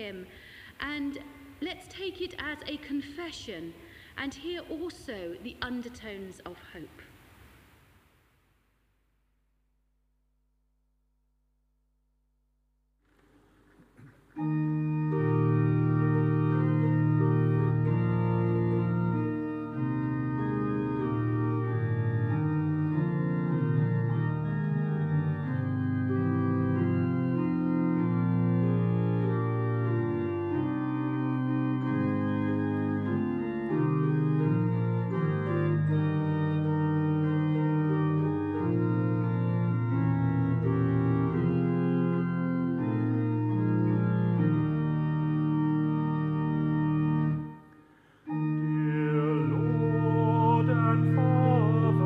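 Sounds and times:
organ playing a hymn: 0:13.3 - 0:52.0.

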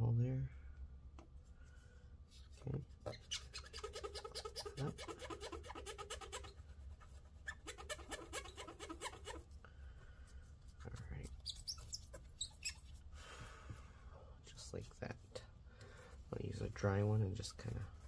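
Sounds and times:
paper towel squeaking on chip: 0:02.3 - 0:09.5, 0:10.9 - 0:13.1.

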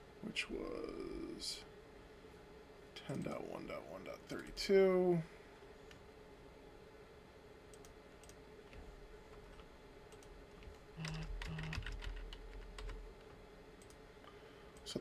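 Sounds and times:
keyboard typing: 0:07.7 - 0:14.0.

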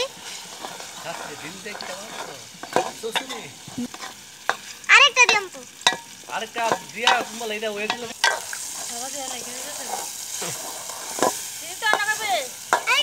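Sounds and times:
metal spoon scraping a bowl: 0:00.0 - 0:04.7, 0:06.6 - 0:12.9
food sizzling in oil: 0:00.0 - 0:13.0.

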